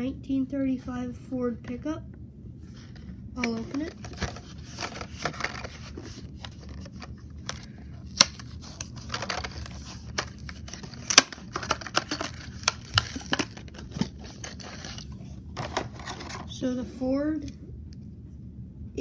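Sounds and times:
plastic crinkling: 0:03.6 - 0:16.4.

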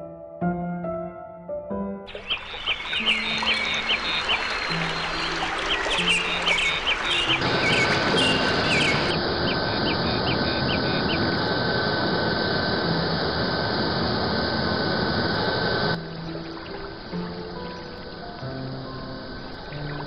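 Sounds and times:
small birds chirping: 0:02.1 - 0:11.8
jet engine rushing with whine: 0:02.1 - 0:16.0.

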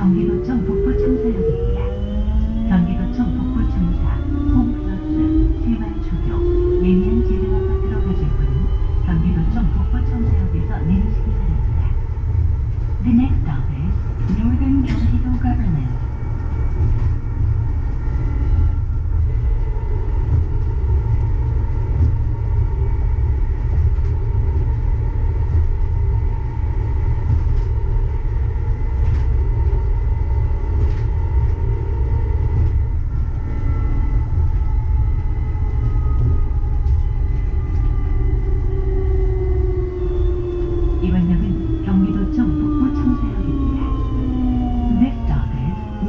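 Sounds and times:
train running low rumble: 0:00.0 - 0:46.0
train motor whine: 0:16.2 - 0:46.0.

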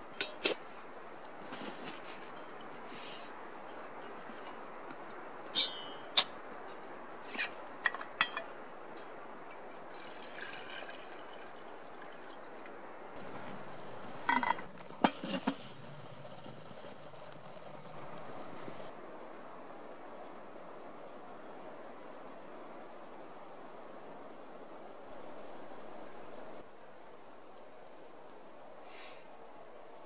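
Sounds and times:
water pouring into kettle: 0:09.5 - 0:12.7.

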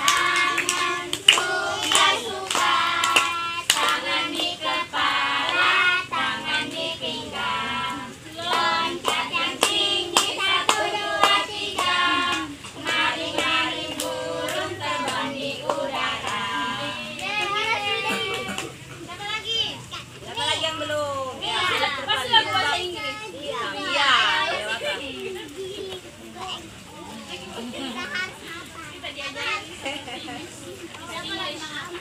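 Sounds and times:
sharp hand claps: 0:00.0 - 0:04.0
children singing: 0:00.0 - 0:18.7.

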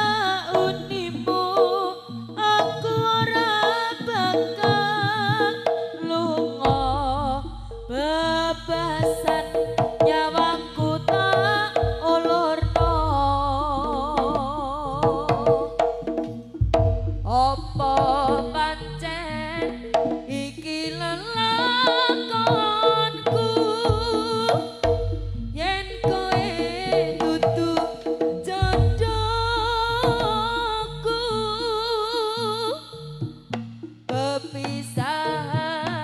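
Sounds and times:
hand drums: 0:00.0 - 0:36.0
deep bass beat: 0:06.5 - 0:21.6, 0:23.9 - 0:31.6.

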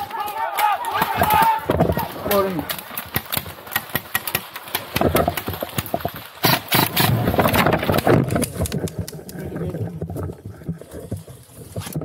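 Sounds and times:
airsoft guns firing: 0:00.0 - 0:05.0.

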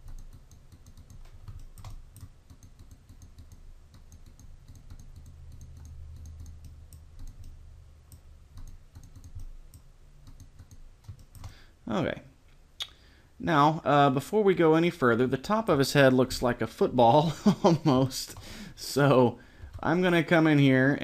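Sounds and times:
computer mouse clicks: 0:00.0 - 0:11.6
low steady hum: 0:00.0 - 0:21.0.

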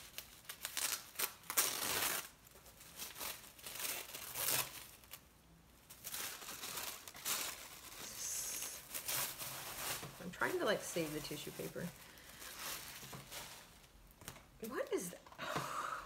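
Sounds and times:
tissue paper rustling: 0:00.0 - 0:15.1.

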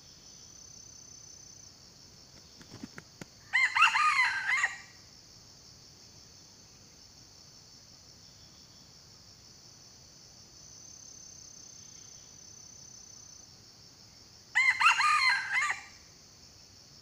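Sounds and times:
insects chirring: 0:00.0 - 0:17.0
rooster crowing: 0:03.5 - 0:05.0, 0:14.5 - 0:16.0.

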